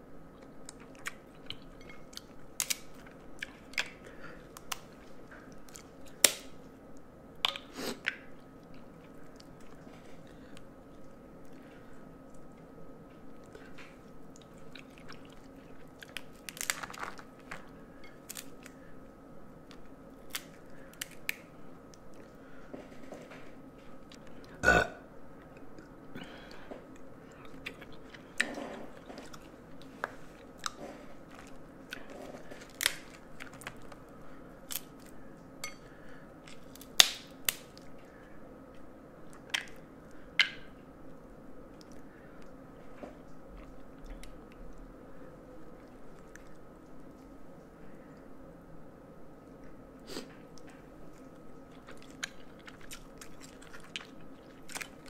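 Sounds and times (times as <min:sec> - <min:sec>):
chewing with wet mouth sounds: 0:00.3 - 0:19.0, 0:19.6 - 0:24.7, 0:25.4 - 0:40.8, 0:41.7 - 0:48.4, 0:49.4 - 0:55.0
crab shell cracking: 0:00.8 - 0:06.6, 0:16.0 - 0:17.6, 0:18.2 - 0:18.8, 0:19.7 - 0:21.5, 0:32.4 - 0:34.0, 0:34.6 - 0:35.2.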